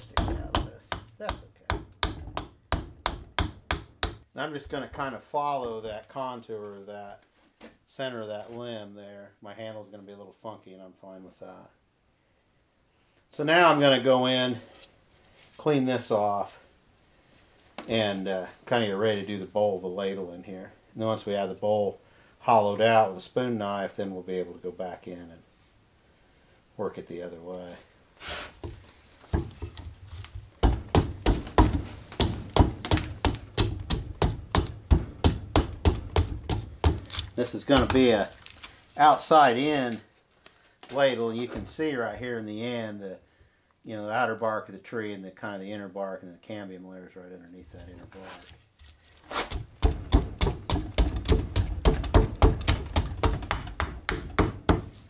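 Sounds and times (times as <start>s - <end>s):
axe chopping wood: 0.1s - 4.2s, 30.6s - 38.1s, 49.4s - 55.0s.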